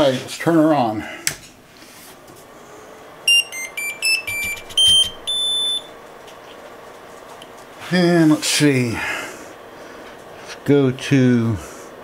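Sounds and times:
faint steady hum: 0:00.4 - 0:12.0
printer buzzer jingle beeps: 0:03.3 - 0:05.9.

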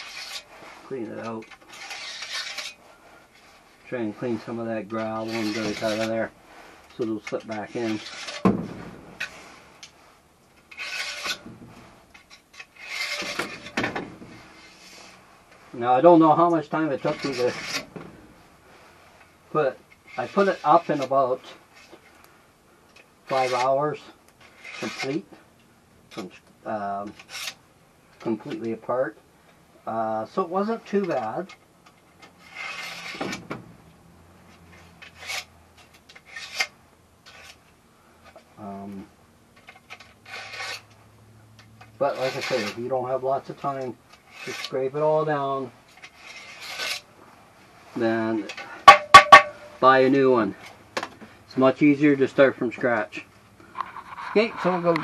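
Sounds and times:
knife scraping metal gutter: 0:00.0 - 0:03.5, 0:04.4 - 0:06.3, 0:06.9 - 0:09.9, 0:10.6 - 0:15.2, 0:16.7 - 0:18.1, 0:19.9 - 0:22.0, 0:23.3 - 0:23.8, 0:24.4 - 0:25.3, 0:27.1 - 0:27.6, 0:30.6 - 0:33.4, 0:34.6 - 0:37.7, 0:39.6 - 0:40.9, 0:41.7 - 0:45.0, 0:45.9 - 0:47.1.

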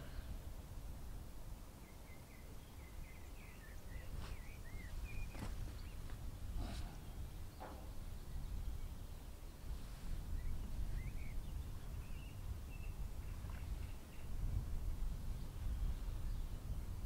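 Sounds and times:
bird chirps: 0:02.1 - 0:06.0
soft scuff: 0:04.2 - 0:04.4.

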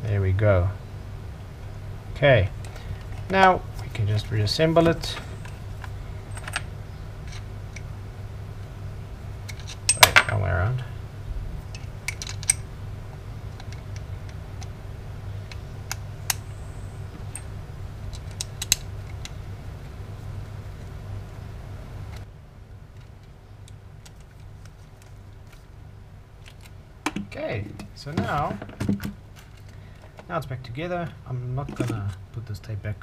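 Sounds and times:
steady low hum: 0:00.0 - 0:33.0
metal parts clicking and clinking: 0:06.3 - 0:06.7, 0:09.5 - 0:10.5, 0:11.7 - 0:12.6.

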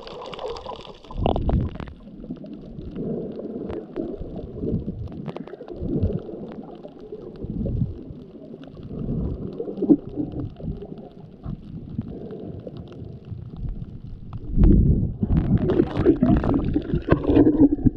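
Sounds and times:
underwater rumble and swish: 0:00.0 - 0:17.9.

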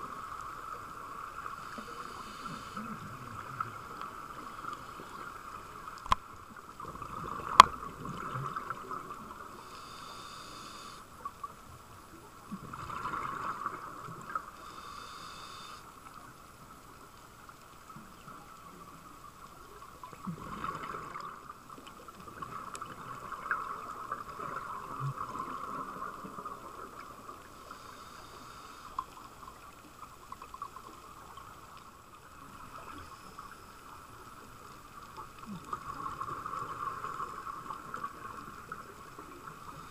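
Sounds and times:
steady underwater hum: 0:00.0 - 0:39.9.

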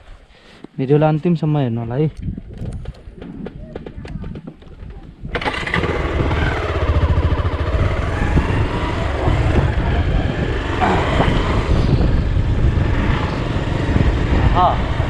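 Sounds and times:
wind rumble on microphone: 0:01.8 - 0:15.0
motorcycle engine running: 0:05.2 - 0:15.0.

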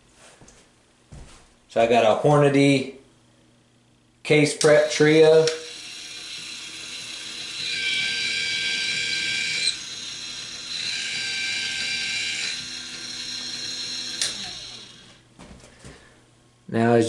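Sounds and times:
electric motor whining: 0:04.7 - 0:15.2.

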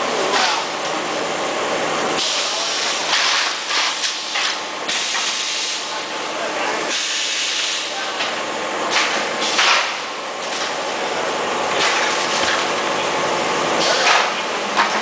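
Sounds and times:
factory machinery running: 0:00.0 - 0:15.0.

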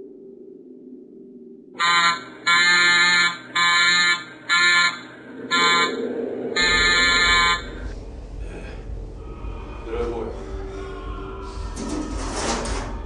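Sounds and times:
electric alarm buzzer: 0:01.8 - 0:06.0, 0:06.6 - 0:07.8
low rumble: 0:05.1 - 0:13.0.

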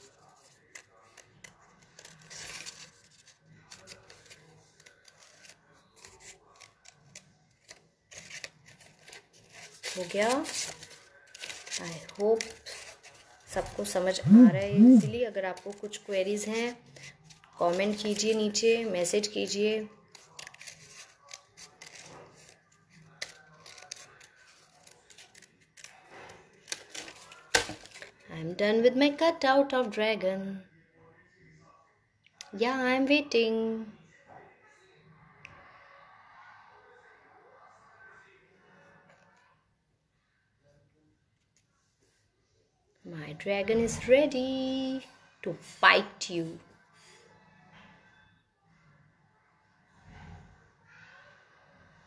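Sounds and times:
paper rustling: 0:00.0 - 0:14.8, 0:20.1 - 0:28.2
scissors snipping paper: 0:00.0 - 0:18.4, 0:20.1 - 0:28.1.

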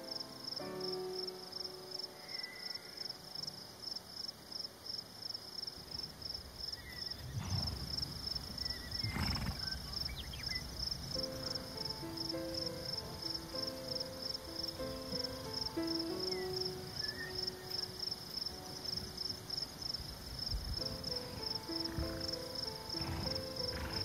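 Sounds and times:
crickets chirping: 0:00.0 - 0:24.0
soft background music: 0:00.0 - 0:24.0
low rumbles: 0:06.3 - 0:11.8.

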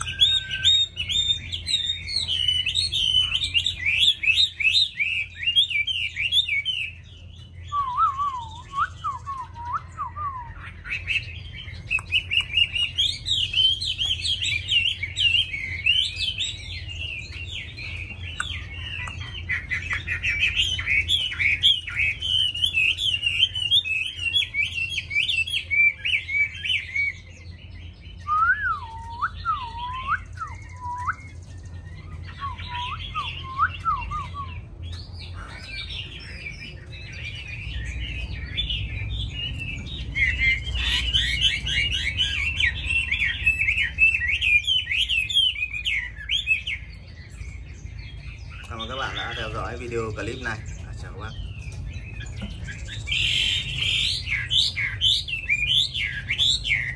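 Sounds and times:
slurred bird whistles: 0:00.0 - 0:07.0, 0:07.7 - 0:17.1, 0:28.2 - 0:34.6
bird singing warbling song: 0:00.0 - 0:56.9.

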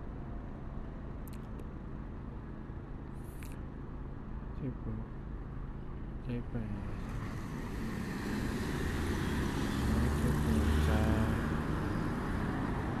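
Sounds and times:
vehicle passing close: 0:07.3 - 0:13.0.

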